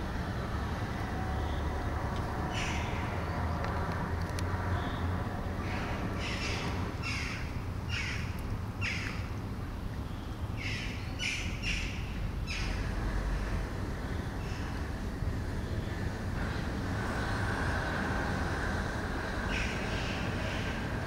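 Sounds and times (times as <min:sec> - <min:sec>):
distant traffic rumble: 0:00.0 - 0:21.0
bird harsh calls: 0:02.5 - 0:03.1, 0:05.6 - 0:09.3, 0:10.6 - 0:12.9, 0:19.4 - 0:20.8.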